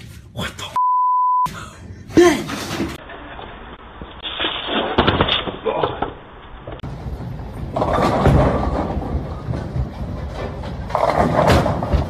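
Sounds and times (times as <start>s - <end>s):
bowling ball rolling on wooden lane: 6.8s - 12.0s
bowling pins clattering: 6.8s - 12.0s.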